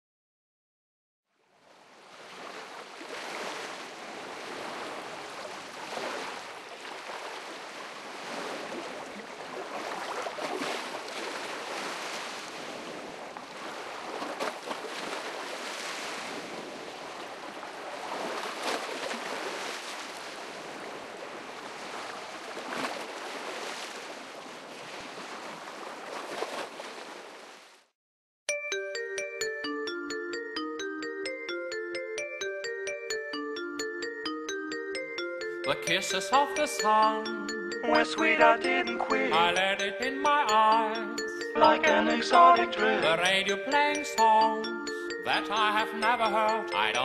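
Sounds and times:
waves washing: 2.3 - 25.6.

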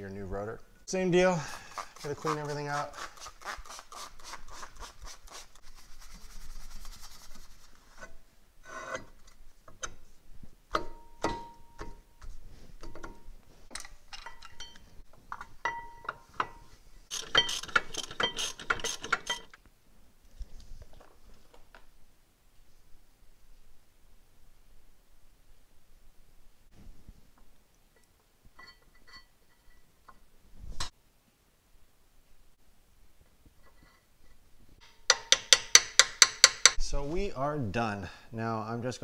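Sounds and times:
metal clinks: 13.8 - 14.9, 28.6 - 30.2
ringing tool taps: 15.6 - 16.2.

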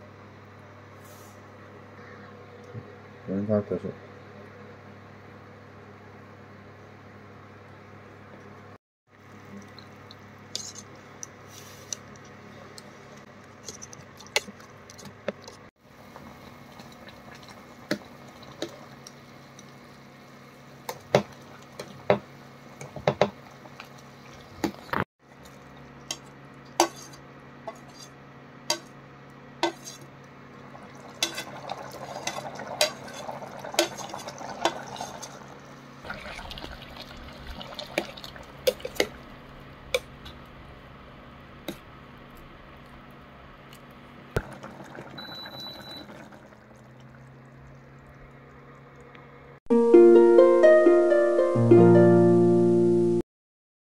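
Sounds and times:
low electrical hum: 0.0 - 49.6
ladle scraping metal pot: 10.5 - 10.9, 26.8 - 28.2, 29.6 - 30.1, 31.2 - 35.4.

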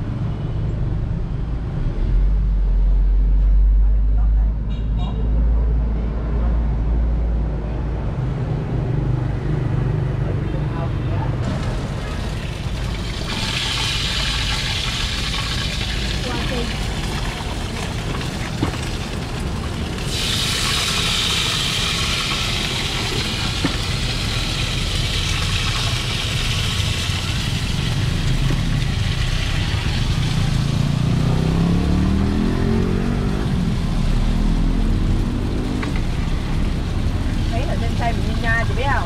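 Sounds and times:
street traffic: 0.0 - 39.0
pancakes sizzling in hot oil: 12.1 - 30.9
motorbike revving past: 28.2 - 36.1.

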